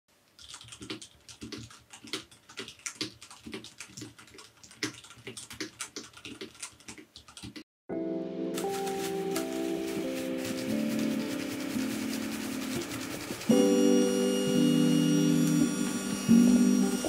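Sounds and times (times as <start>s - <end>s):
mechanical keyboard typing: 0.3s - 7.6s, 8.6s - 14.7s.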